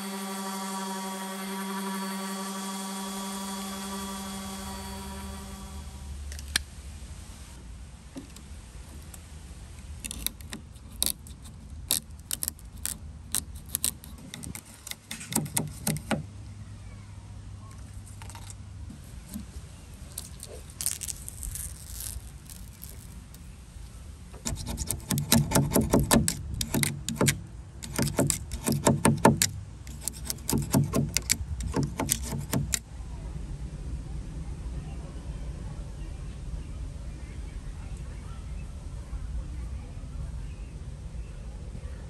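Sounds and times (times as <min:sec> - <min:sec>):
flakes snapping off: 0:10.0 - 0:16.0, 0:20.1 - 0:23.5
razor blade scraping wood finish: 0:10.1 - 0:16.2, 0:24.4 - 0:32.8.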